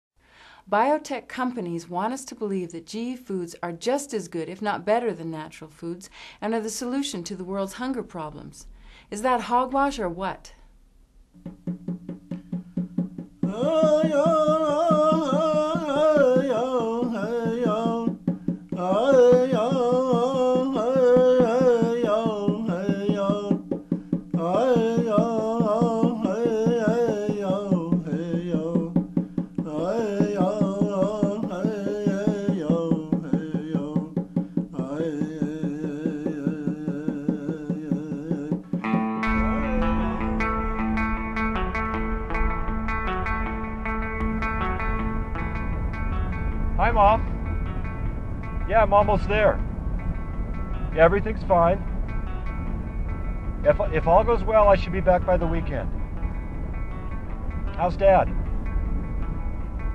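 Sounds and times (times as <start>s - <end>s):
frame drum beating: 11.3s - 59.4s
man chanting: 13.5s - 18.1s, 39.3s - 40.8s, 48.7s - 49.6s, 51.0s - 51.8s, 53.7s - 55.9s.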